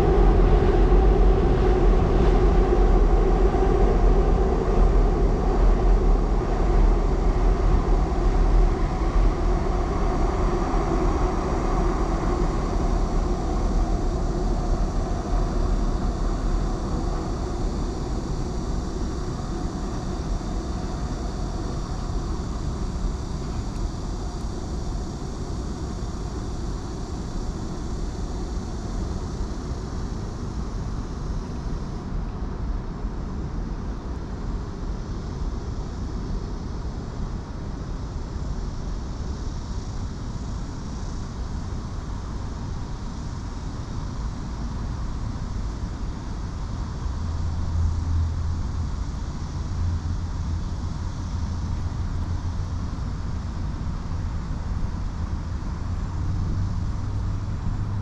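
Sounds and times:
deep low hum: 0:00.0 - 0:26.1
rumble of city traffic: 0:00.0 - 0:58.0.

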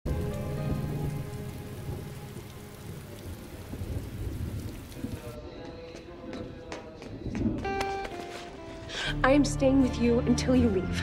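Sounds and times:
steady rain falling: 0:00.1 - 0:05.4.

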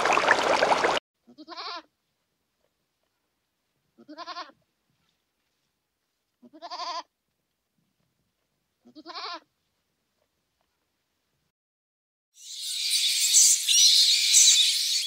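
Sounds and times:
animal bleating: 0:01.2 - 0:01.9, 0:04.0 - 0:04.6, 0:06.4 - 0:07.1, 0:08.8 - 0:09.5.

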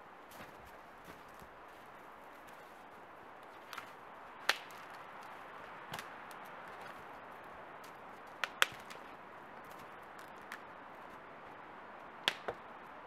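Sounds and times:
wooden logs knocking together: 0:08.4 - 0:09.1, 0:12.2 - 0:12.6.

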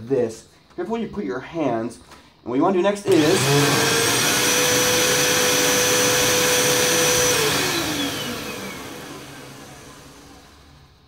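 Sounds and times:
vacuum cleaner motor whine: 0:03.1 - 0:11.0.

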